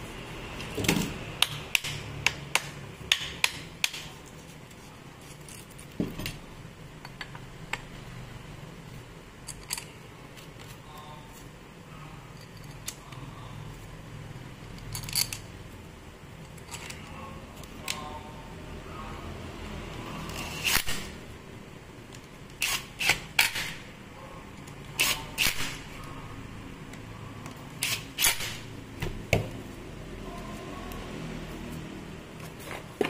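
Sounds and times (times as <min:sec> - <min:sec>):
metal parts clicking together: 0:09.4 - 0:10.7, 0:14.6 - 0:15.5, 0:16.4 - 0:18.0.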